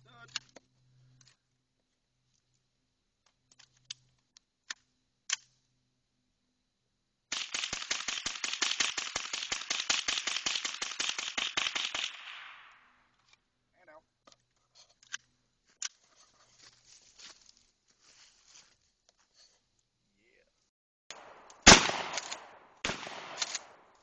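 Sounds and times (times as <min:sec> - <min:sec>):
rifle firing rapid shots: 0:07.3 - 0:12.7, 0:21.1 - 0:23.9.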